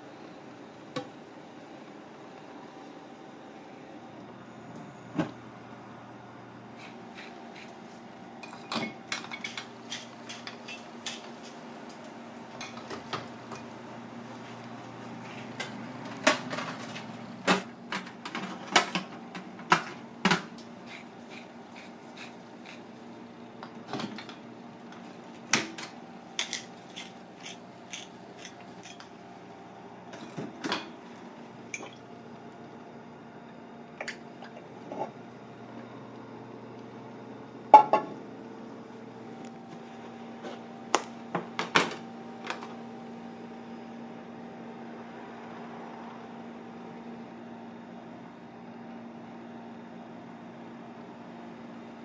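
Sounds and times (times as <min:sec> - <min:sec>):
steady low hum: 0:00.0 - 0:51.8.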